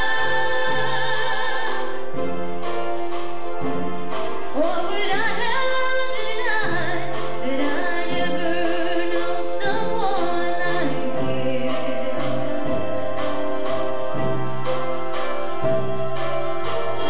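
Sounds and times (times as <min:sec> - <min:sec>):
woman singing into microphone: 0:00.0 - 0:02.0, 0:04.6 - 0:13.0
held chords accompaniment: 0:00.0 - 0:17.0.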